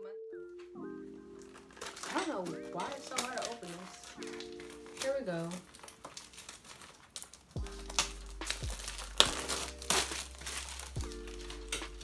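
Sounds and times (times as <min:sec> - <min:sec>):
plastic packaging crinkling and tearing: 0:01.2 - 0:12.0
low backing beat: 0:07.6 - 0:12.0.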